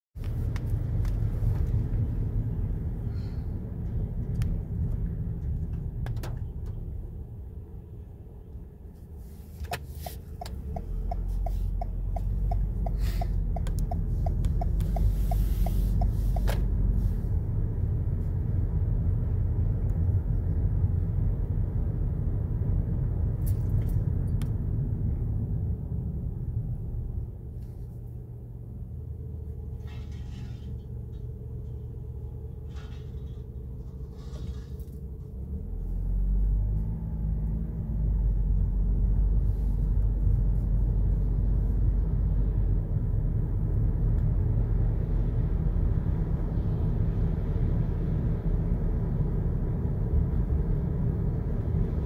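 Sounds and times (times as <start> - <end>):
car cabin rumble: 9.0 - 18.2
regular ticking: 10.3 - 16.5.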